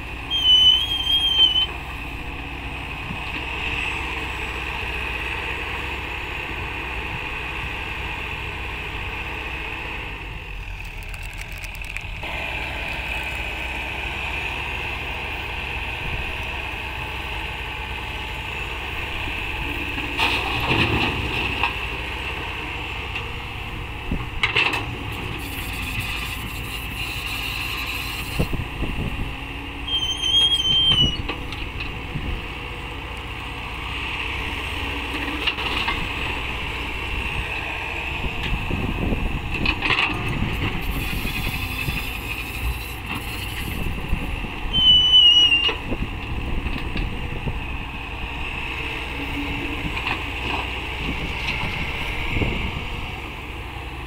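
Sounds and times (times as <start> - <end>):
excavator diesel engine running: 0.0 - 54.0
wavering squeal: 0.3 - 1.7, 29.8 - 31.2, 44.7 - 45.7.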